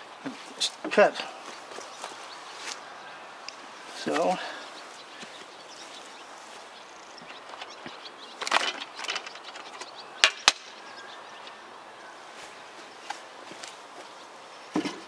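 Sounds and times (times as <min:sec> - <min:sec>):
outdoor background noise: 0:00.0 - 0:15.0
rustling and clatter: 0:07.2 - 0:10.0.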